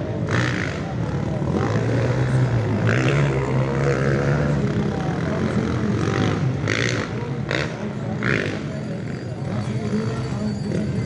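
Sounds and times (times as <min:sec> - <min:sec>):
crowd chatter: 0:00.0 - 0:11.0
dirt bike engines revving: 0:00.0 - 0:11.0.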